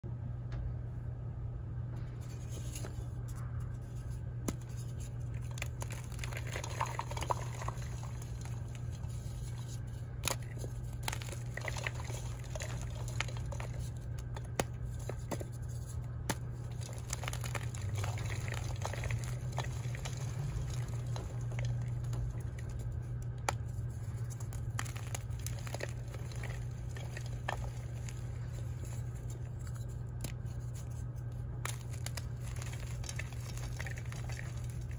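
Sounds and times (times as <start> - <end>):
low hum: 0.0 - 34.9
chalk pieces snapping: 9.2 - 15.6, 16.3 - 34.9.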